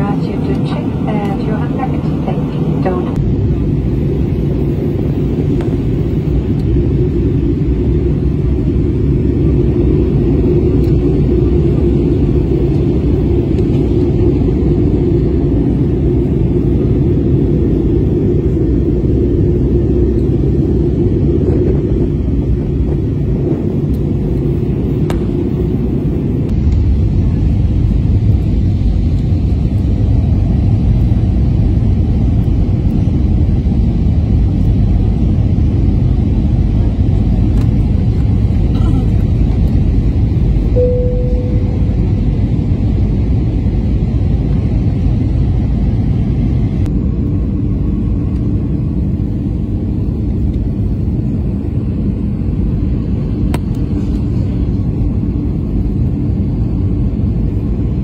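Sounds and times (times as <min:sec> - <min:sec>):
airliner cabin roar: 0:00.0 - 0:58.0
short single tone: 0:40.7 - 0:42.2
faint low hum: 0:40.7 - 0:42.7.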